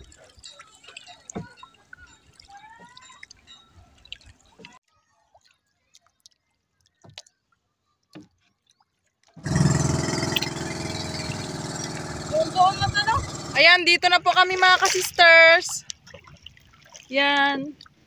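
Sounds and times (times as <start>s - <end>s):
water dripping and lapping: 0.0s - 18.0s
boat engine running: 9.4s - 14.8s.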